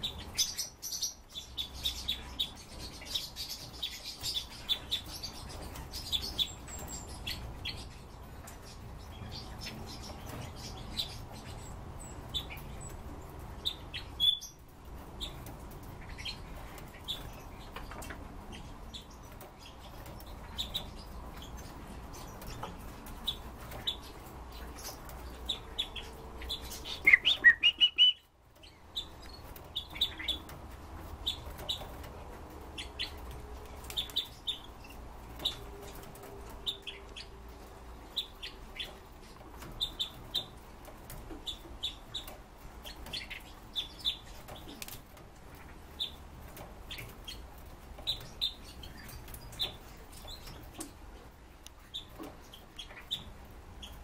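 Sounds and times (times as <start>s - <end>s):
birds chirping: 0.0s - 54.0s
soft clicks of hopping: 44.6s - 45.0s.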